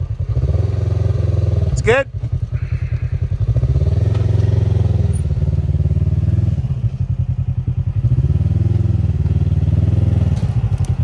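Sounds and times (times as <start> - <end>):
engine rumbling at low revs: 0.0 - 11.0.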